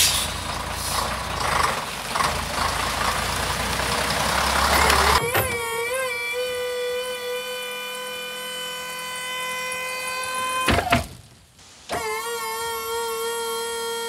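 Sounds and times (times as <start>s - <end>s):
hydraulic pump whining: 4.7s - 11.2s, 11.9s - 14.0s.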